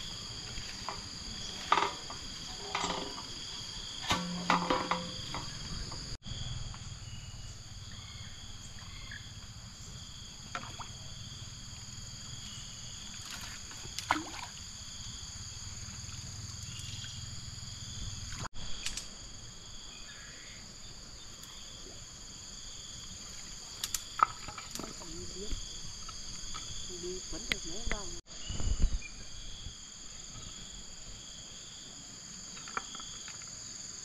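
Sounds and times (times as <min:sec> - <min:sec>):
high-pitched insect chorus: 0:00.0 - 0:34.0
sharp knocks or splashes: 0:13.2 - 0:14.6.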